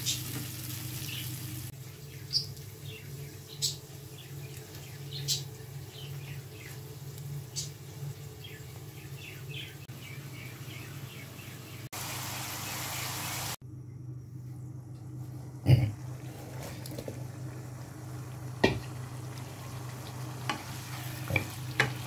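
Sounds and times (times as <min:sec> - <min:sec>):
fish frying in hot oil: 0:00.0 - 0:08.4, 0:11.9 - 0:13.6, 0:16.0 - 0:22.0
birds chirping: 0:01.0 - 0:13.5
steady low hum: 0:13.6 - 0:22.0.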